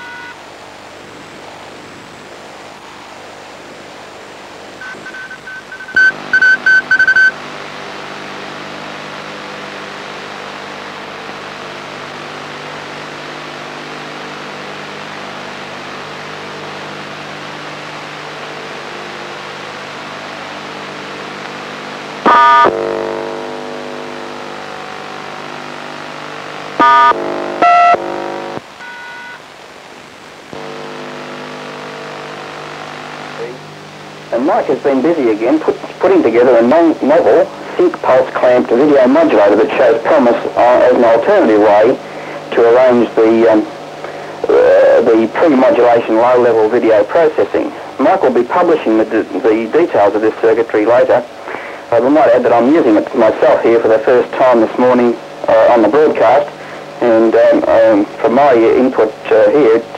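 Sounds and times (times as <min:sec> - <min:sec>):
touch-tone beeps: 0:00.0 - 0:00.4, 0:04.8 - 0:07.3, 0:28.8 - 0:29.4
loud tone burst: 0:00.0 - 0:00.6, 0:04.8 - 0:08.6, 0:20.1 - 0:34.1
low buzzing hum: 0:00.0 - 0:49.5, 0:51.3 - 0:59.9.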